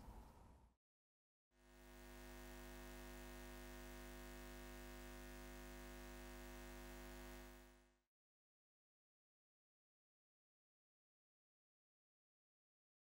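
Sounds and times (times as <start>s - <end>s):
hum of held tones: 1.6s - 8.0s.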